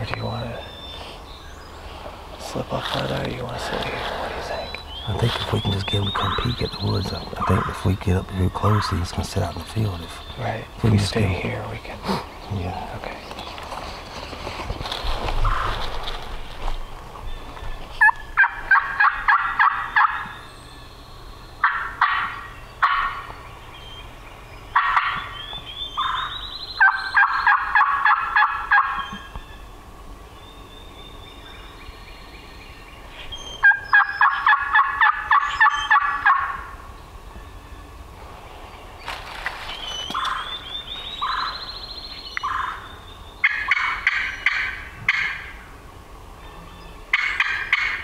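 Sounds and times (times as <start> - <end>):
turkey call notes: 3.1 - 12.3, 17.4 - 24.1, 24.7 - 29.7, 33.2 - 36.8, 39.7 - 45.8, 46.4 - 48.0
turkey gobbling: 3.5 - 9.6, 18.0 - 20.3, 21.6 - 23.3, 24.7 - 29.4, 33.6 - 36.8, 39.9 - 41.8, 42.4 - 45.7, 47.1 - 48.0.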